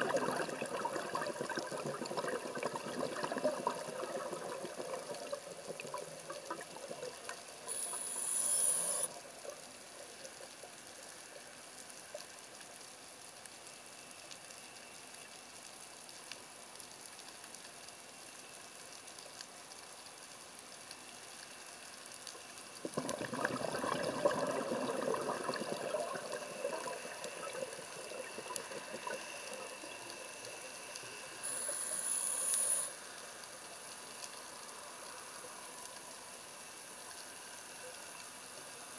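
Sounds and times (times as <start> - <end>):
exhaled air bubbling: 0.0 - 9.7, 22.8 - 32.9
faint underwater hiss: 0.0 - 38.9
regulator inhale hiss: 7.6 - 9.2, 28.8 - 33.3.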